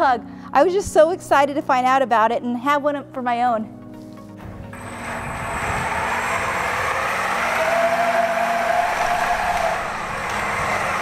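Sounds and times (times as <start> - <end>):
electric motor whine: 4.7 - 11.0
tracks rolling: 4.7 - 11.0.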